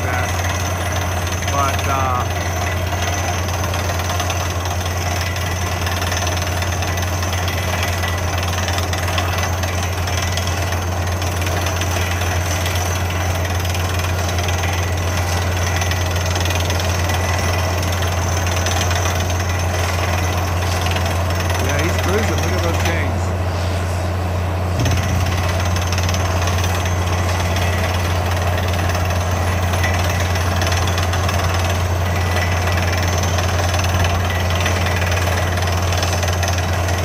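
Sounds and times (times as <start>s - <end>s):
engine and compressor drone: 0.0s - 37.0s
air hammer pounding: 24.7s - 37.0s.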